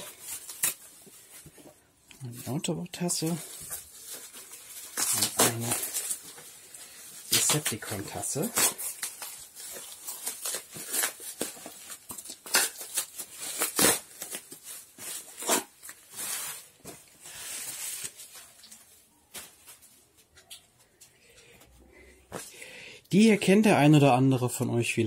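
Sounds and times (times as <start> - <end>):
wrapping crackling and tearing: 0.0 - 21.0.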